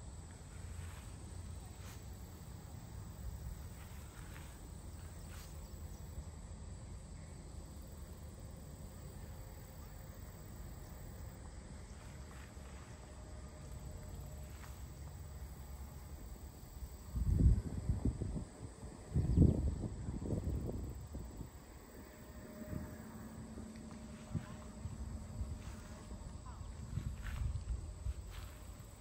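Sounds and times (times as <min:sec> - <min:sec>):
faint high hum: 0:00.0 - 0:29.0
low rumble: 0:17.3 - 0:29.0.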